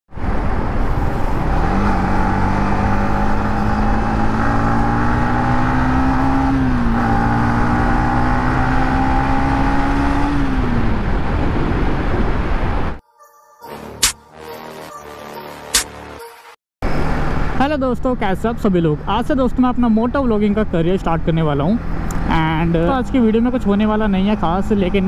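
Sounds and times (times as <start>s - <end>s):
wind noise: 9.5s - 13.0s.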